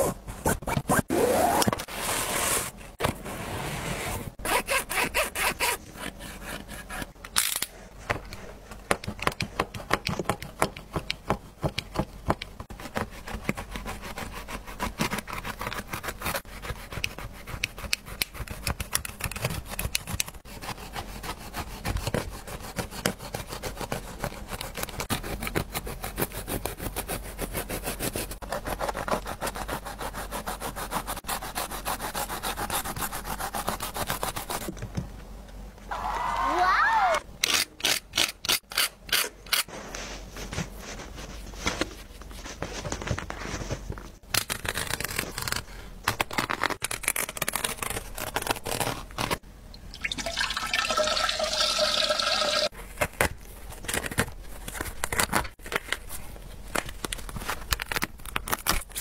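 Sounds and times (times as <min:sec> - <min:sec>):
blade sawing through fabric: 0:12.7 - 0:34.7.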